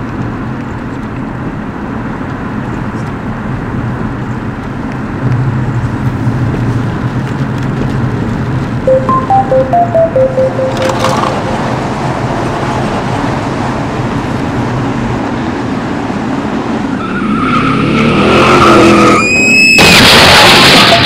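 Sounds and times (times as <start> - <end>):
car road noise: 0.0 - 8.8, 10.8 - 21.0
tires squealing: 16.7 - 21.0.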